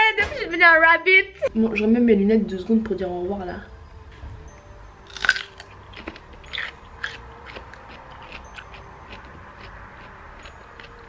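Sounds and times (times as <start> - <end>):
radish bitten with crunch: 5.1 - 10.1
chewing crunches: 5.1 - 11.0.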